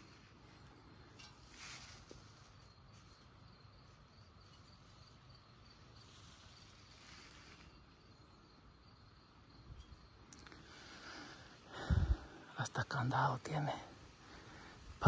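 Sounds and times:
faint rustling: 0:00.0 - 0:05.0.

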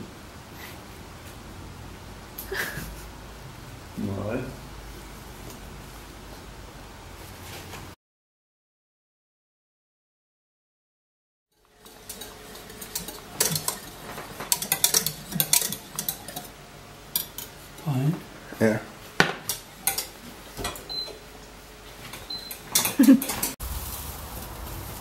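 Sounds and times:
metal kitchen clatter: 0:11.7 - 0:17.6, 0:19.2 - 0:21.1, 0:22.1 - 0:23.6
wire whisk clinking on saucepan: 0:11.8 - 0:16.5.

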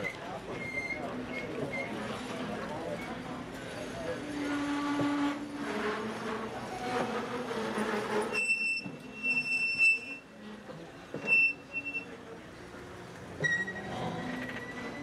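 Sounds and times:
train coaches rolling on rails: 0:00.0 - 0:15.0
high-pitched wheel squeal: 0:04.4 - 0:10.3, 0:11.2 - 0:12.2, 0:13.4 - 0:15.0.

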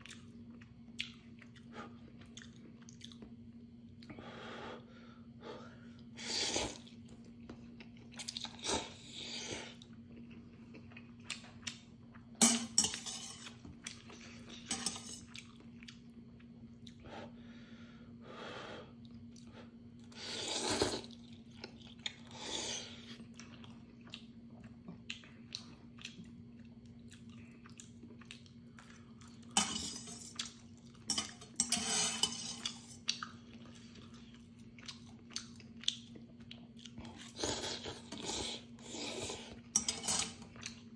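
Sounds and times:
chopsticks clinking on metal bowl: 0:12.4 - 0:13.5, 0:14.7 - 0:15.3, 0:29.5 - 0:30.5, 0:31.1 - 0:33.0, 0:39.7 - 0:40.4
person slurping noodles: 0:20.2 - 0:21.1, 0:37.2 - 0:40.2.

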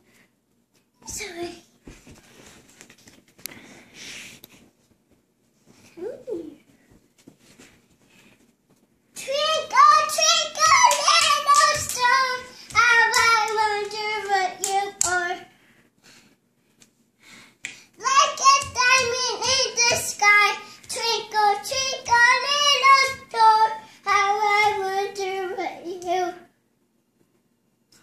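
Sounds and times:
toddler girl singing: 0:09.2 - 0:15.5, 0:18.0 - 0:26.5.

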